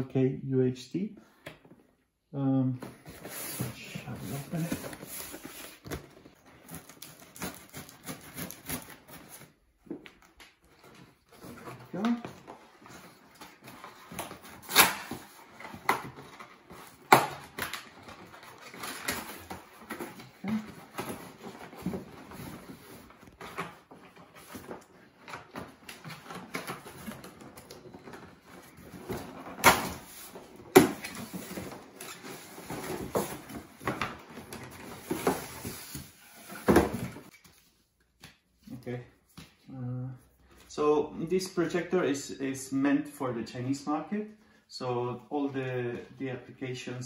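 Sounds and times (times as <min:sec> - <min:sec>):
cardboard flaps scraping: 0:03.0 - 0:09.6.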